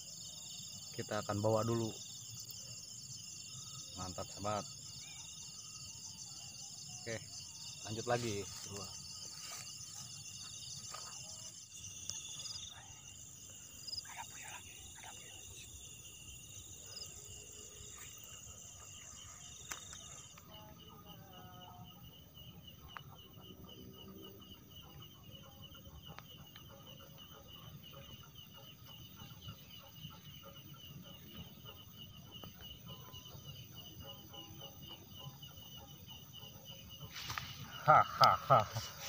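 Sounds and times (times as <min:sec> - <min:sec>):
high insect drone: 0:00.0 - 0:39.0
insects trilling: 0:00.0 - 0:39.0
footsteps through grass: 0:08.0 - 0:11.5, 0:37.1 - 0:37.7.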